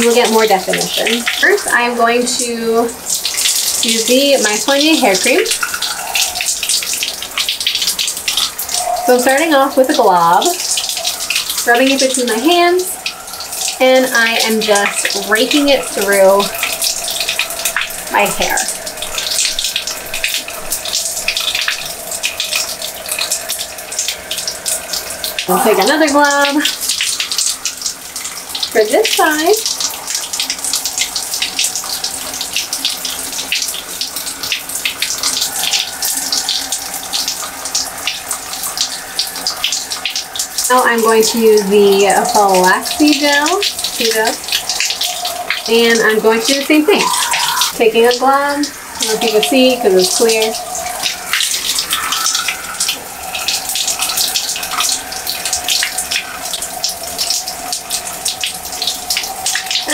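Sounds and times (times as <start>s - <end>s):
shower water spattering: 0.0s - 59.9s.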